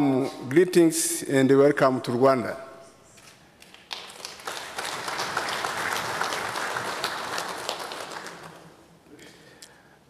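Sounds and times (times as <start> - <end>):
audience applauding: 3.7 - 8.8.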